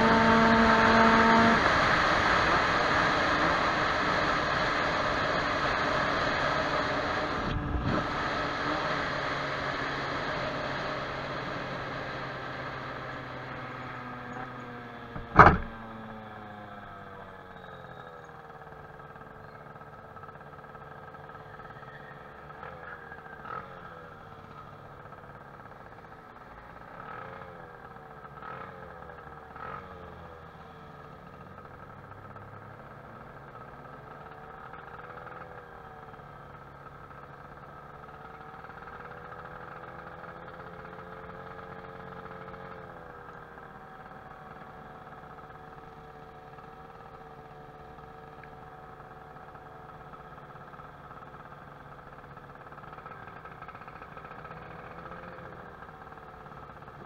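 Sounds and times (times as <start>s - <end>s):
scooter engine idling and revving: 0.0s - 57.0s
sharp knock: 15.2s - 15.8s.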